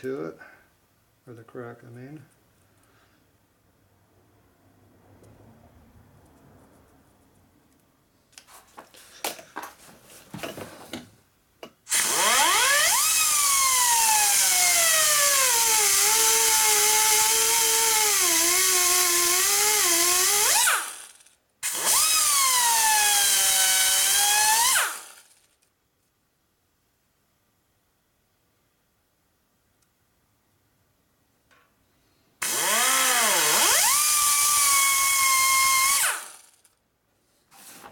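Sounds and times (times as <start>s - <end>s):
die grinder whining on metal: 11.9s - 25.3s, 32.4s - 36.6s.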